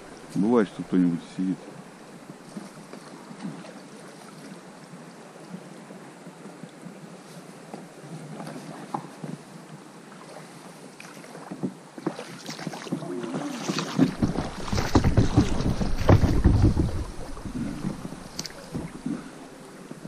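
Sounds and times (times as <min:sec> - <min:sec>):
water splashing around boat: 0:00.0 - 0:20.0
rumble of microphone jostling: 0:13.7 - 0:19.4.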